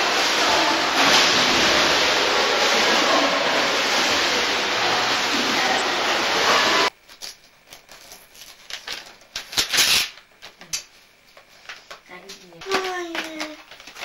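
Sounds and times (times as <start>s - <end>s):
indoor swimming pool noise: 0.0s - 7.0s
wrapping paper crackling and tearing: 7.1s - 10.9s, 11.5s - 14.0s.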